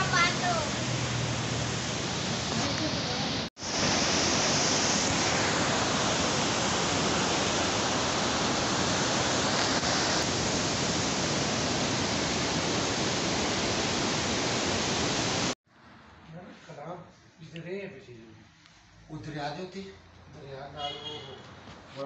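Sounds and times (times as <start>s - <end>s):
river rushing over rocks: 0.0s - 15.6s.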